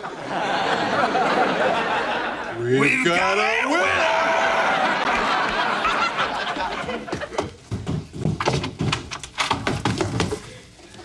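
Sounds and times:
footsteps running up wooden stairs: 6.8s - 10.5s.

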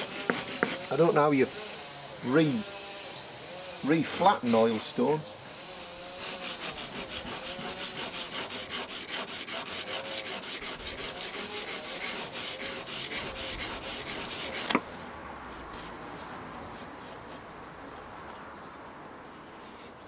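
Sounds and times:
chisel rubbing on stone: 0.0s - 1.7s, 3.9s - 5.2s, 5.9s - 14.8s.

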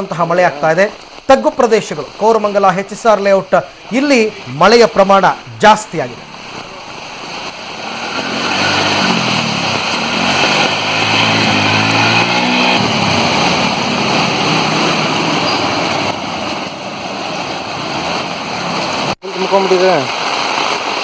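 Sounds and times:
water rushing and splashing: 0.0s - 21.0s
small vehicle engine revving: 7.2s - 16.2s.

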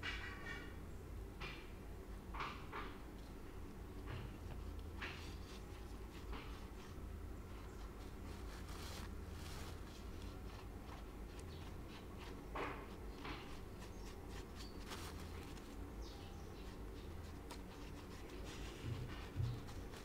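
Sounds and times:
fingers smoothing wet plaster: 7.8s - 15.8s
soft bumps: 18.4s - 20.0s.

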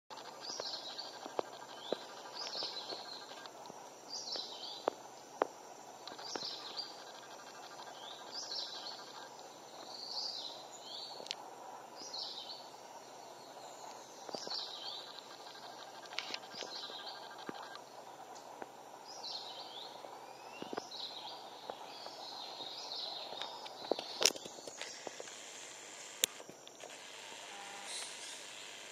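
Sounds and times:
bird chirping: 0.1s - 4.9s, 6.0s - 11.3s, 11.9s - 18.0s, 19.0s - 28.9s
steady background noise: 0.1s - 28.9s.

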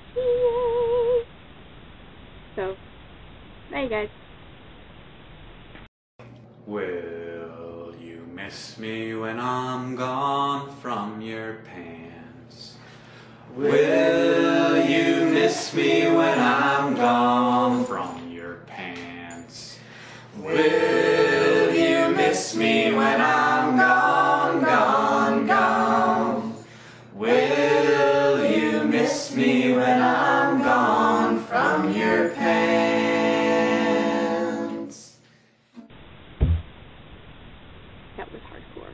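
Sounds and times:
a cappella singing: 6.7s - 12.9s, 13.5s - 35.2s
short knock: 36.4s - 36.8s.

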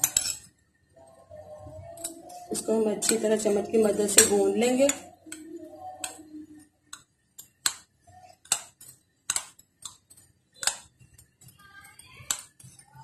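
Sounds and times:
metal spoon clinking on ceramic bowl: 0.0s - 0.5s.

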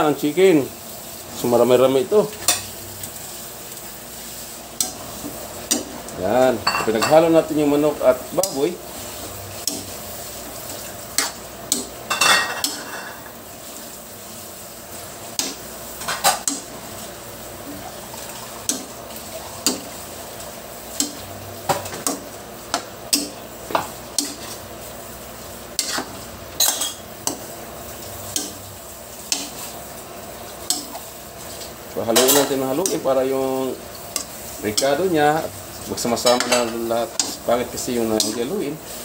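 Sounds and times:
low sizzle: 0.0s - 39.0s
metal spatula scraping wok: 25.7s - 27.4s.

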